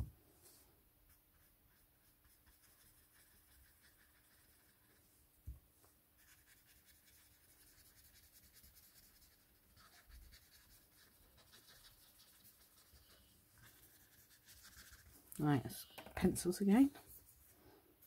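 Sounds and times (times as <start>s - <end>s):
paper stump rubbing on card: 6.3s - 15.2s.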